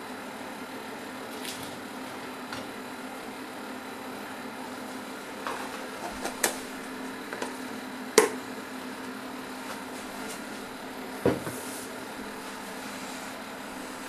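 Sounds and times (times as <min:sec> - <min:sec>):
cooking machine humming: 0:00.0 - 0:14.0.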